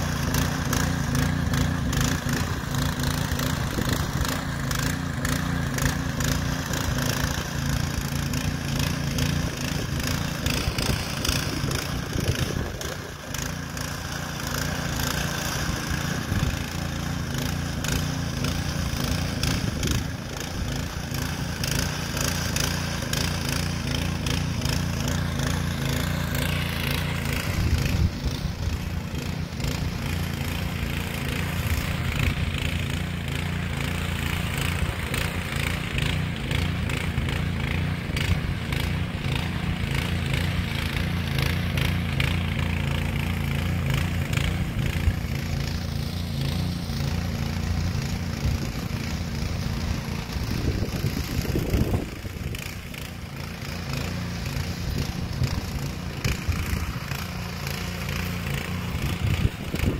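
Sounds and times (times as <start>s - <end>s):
motor hoe engine running: 0.0s - 59.9s
tines rattling: 0.0s - 59.9s.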